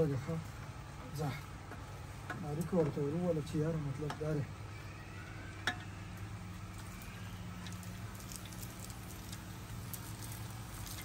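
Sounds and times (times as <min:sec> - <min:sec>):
small clicks and crackles: 0:06.7 - 0:11.0.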